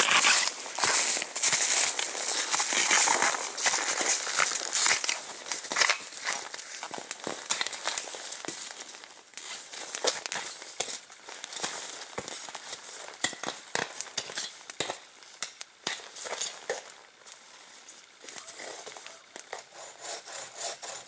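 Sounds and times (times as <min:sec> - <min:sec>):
footsteps crunching in snow: 0:00.0 - 0:13.2.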